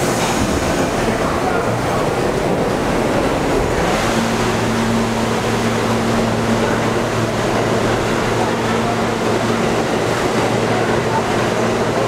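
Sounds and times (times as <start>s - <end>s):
subway train wheels rumbling: 0.0s - 12.0s.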